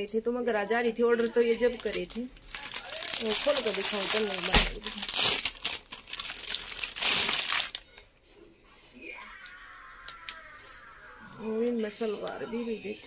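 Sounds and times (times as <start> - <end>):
plastic packaging crinkling: 1.0 - 8.1.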